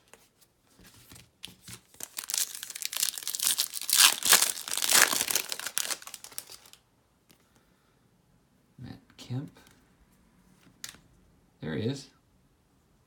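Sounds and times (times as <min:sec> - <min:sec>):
foil wrapper crinkling: 0:01.4 - 0:06.8.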